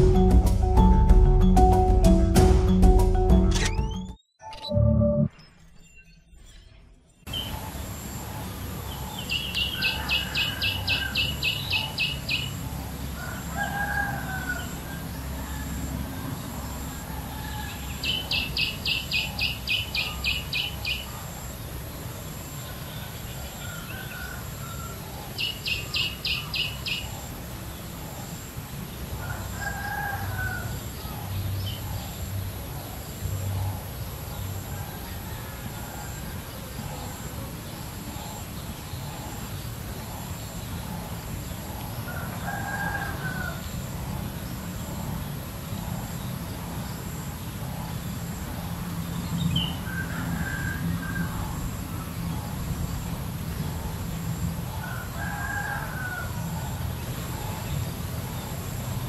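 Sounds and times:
rooster crowing: 9.7 - 12.4, 13.0 - 18.4, 23.4 - 25.0, 29.2 - 31.1, 34.7 - 36.7, 42.1 - 43.9, 49.6 - 51.8, 54.7 - 56.8.

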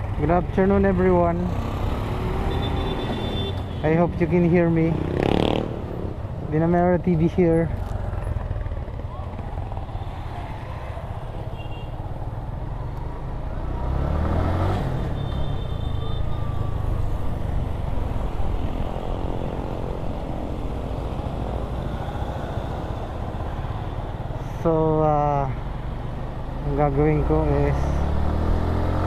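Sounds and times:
road and wind rumble: 0.0 - 29.0
motorcycle engine accelerating: 4.9 - 6.2, 27.8 - 29.0.

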